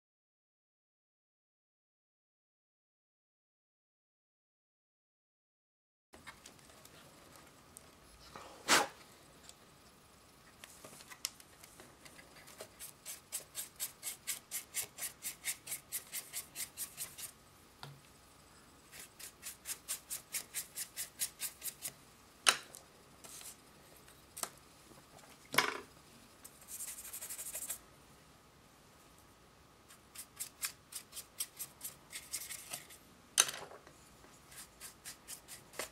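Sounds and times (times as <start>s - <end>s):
short hiss: 8.6s - 9.0s
paintbrush scrubbing plastic: 12.3s - 17.4s, 18.9s - 21.9s, 26.6s - 27.8s, 29.9s - 33.0s, 34.4s - 35.9s.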